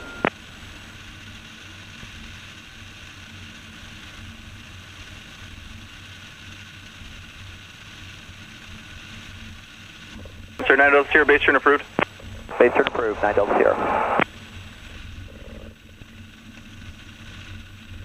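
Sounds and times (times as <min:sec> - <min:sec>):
light aircraft engine drone: 0:00.0 - 0:18.0.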